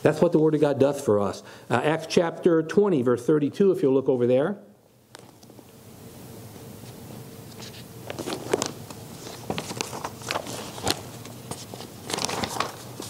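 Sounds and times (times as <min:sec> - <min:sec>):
thin pages being leafed through: 0:07.5 - 0:13.0.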